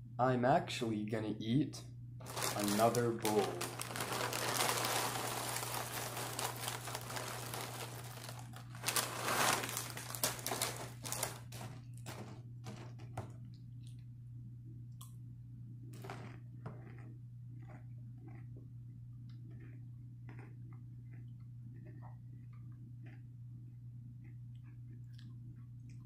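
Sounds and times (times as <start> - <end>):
plastic bag crinkling: 2.2 - 12.3
cereal rattling into bowl: 2.2 - 12.9.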